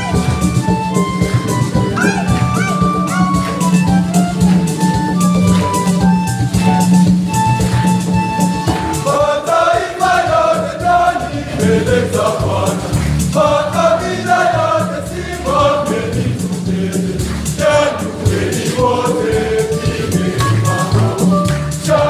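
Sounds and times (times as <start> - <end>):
low musical accompaniment: 0.0 - 22.0
regular drum beat: 0.0 - 22.0
choir singing gospel song: 8.0 - 22.0.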